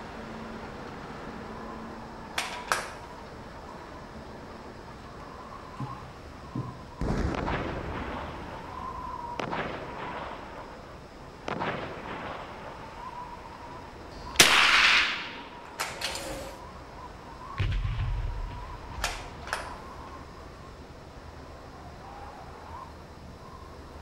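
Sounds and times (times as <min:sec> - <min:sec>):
rifle shots with echo: 0:14.4 - 0:15.4
sharp metallic clicks: 0:19.0 - 0:19.7.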